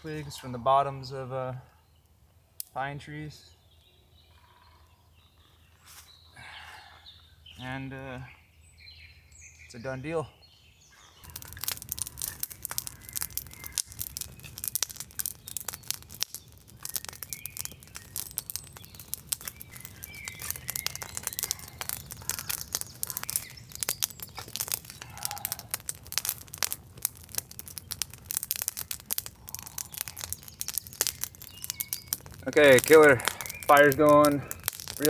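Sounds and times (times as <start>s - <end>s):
campfire crackling and popping: 0.0s - 3.0s, 10.9s - 35.0s.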